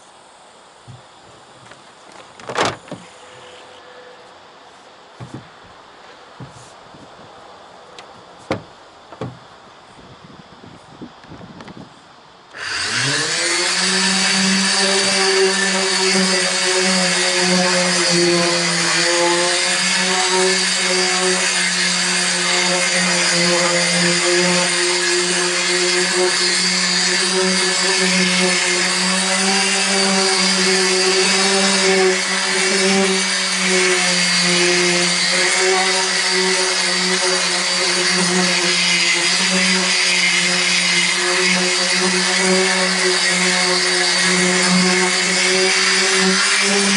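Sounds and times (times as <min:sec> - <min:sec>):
electric orbital sander running: 0:12.5 - 0:46.9.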